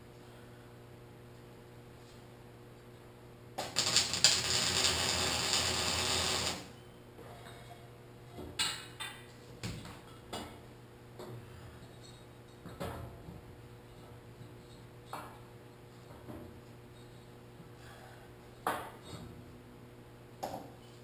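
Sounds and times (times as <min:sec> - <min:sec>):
welder arc crackling: 0:03.6 - 0:06.8.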